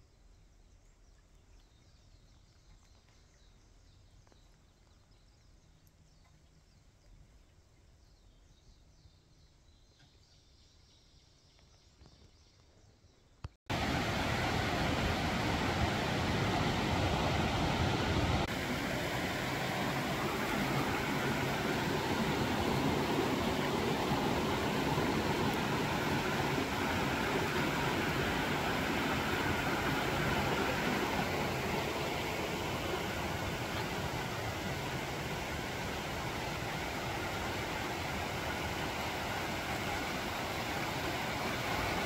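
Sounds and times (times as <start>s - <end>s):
running water rushing: 13.7s - 42.0s.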